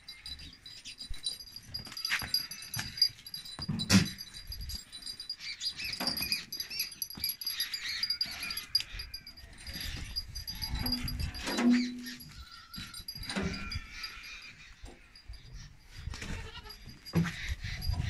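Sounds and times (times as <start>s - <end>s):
small high chirps: 0.1s - 16.0s.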